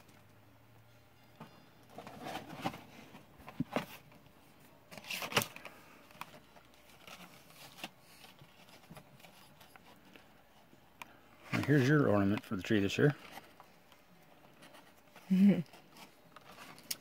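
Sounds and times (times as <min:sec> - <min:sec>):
packaging rustling and crinkling: 0:01.9 - 0:04.2, 0:04.9 - 0:10.4, 0:13.0 - 0:17.0.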